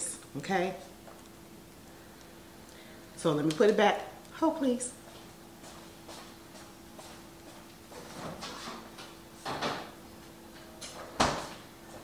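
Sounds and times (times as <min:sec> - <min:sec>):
faint steady hum: 0:00.0 - 0:12.0
refrigerator door opening and shutting: 0:08.1 - 0:10.0, 0:10.8 - 0:11.7.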